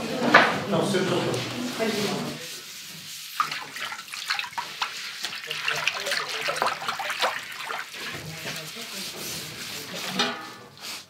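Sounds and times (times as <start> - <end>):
water pouring and splashing: 1.5 - 10.2
dishes clinking: 10.0 - 10.8.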